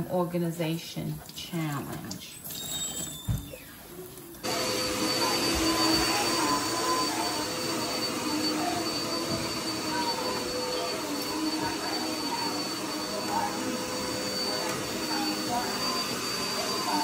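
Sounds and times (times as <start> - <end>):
appliance motor whine: 4.4 - 17.0.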